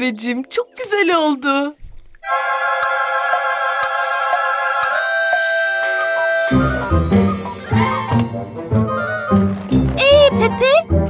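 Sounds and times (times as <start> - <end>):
high ringing notes: 4.3 - 11.0.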